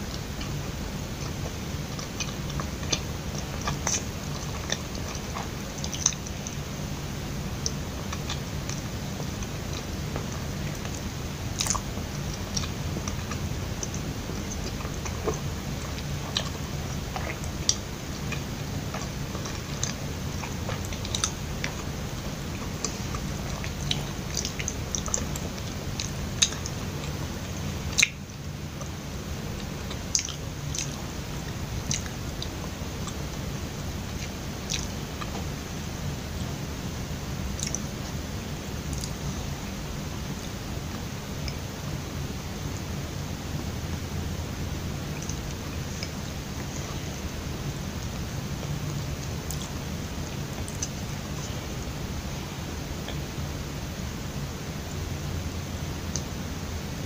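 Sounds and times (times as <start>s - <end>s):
chewing with wet mouth clicks: 0.0s - 6.7s, 7.4s - 33.4s, 34.1s - 35.5s, 37.5s - 37.9s, 38.9s - 39.3s, 45.1s - 47.1s, 49.2s - 51.6s
steady low hum: 0.0s - 57.0s.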